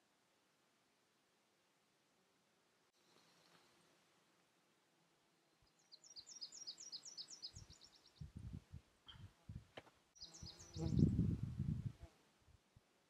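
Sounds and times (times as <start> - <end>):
songbird trilling: 5.9 - 8.1
wind buffeting microphone: 7.6 - 9.8, 10.7 - 12.1.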